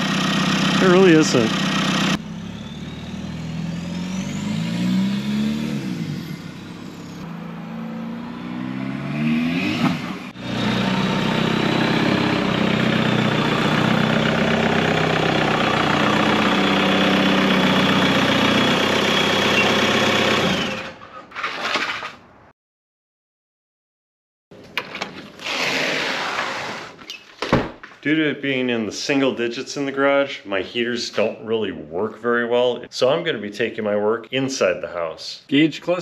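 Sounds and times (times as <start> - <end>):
diesel engine revving: 0.0 - 21.0
high turbo whistle: 1.8 - 14.1.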